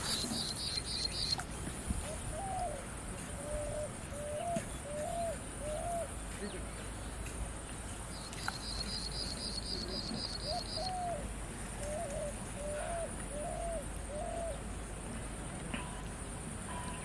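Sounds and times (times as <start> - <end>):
high insect hiss: 0.0 - 4.0, 6.1 - 12.6
bird calling low notes: 8.2 - 11.3.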